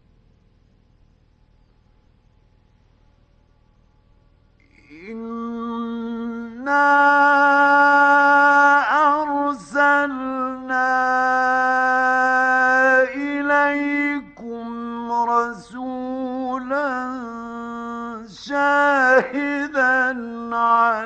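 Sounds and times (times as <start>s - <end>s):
man chanting melodically: 4.8s - 21.0s.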